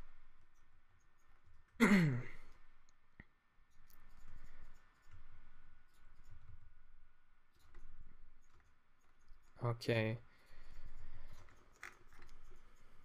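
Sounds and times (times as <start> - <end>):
high whine of computer fan: 0.0 - 13.0
mouse and keyboard click: 3.7 - 6.6, 7.5 - 9.6, 10.7 - 13.0.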